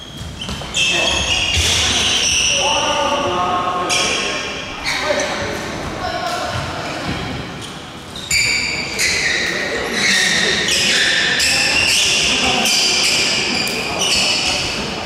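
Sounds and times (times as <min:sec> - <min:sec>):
sneakers squeaking on wooden floor: 0:00.0 - 0:02.8, 0:06.5 - 0:14.9.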